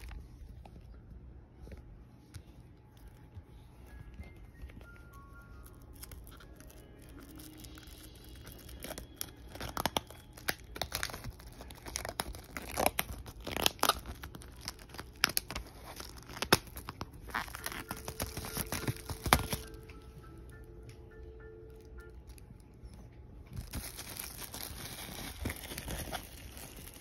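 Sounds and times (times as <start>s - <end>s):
plastic wrap crinkling and ripping: 4.6s - 19.9s, 23.5s - 27.0s.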